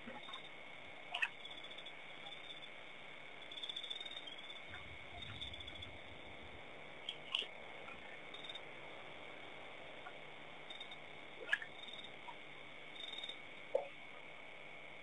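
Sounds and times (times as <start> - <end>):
insects chirring: 0.0 - 15.0
soft low rumble: 3.1 - 15.0.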